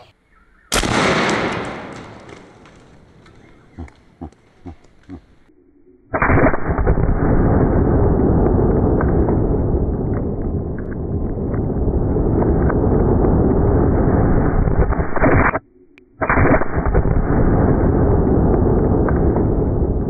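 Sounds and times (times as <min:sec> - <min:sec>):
faint clicks: 0:01.3 - 0:05.5
slowed-down low dense rumble: 0:07.0 - 0:15.2, 0:17.0 - 0:20.0.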